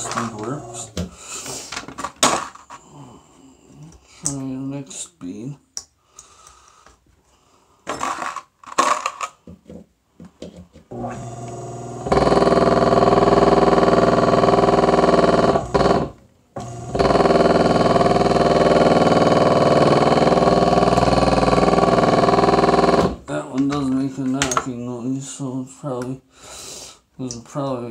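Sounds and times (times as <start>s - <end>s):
furnace blower motor humming: 0.0s - 1.1s, 10.9s - 23.2s
blower knocking noise: 10.9s - 23.2s.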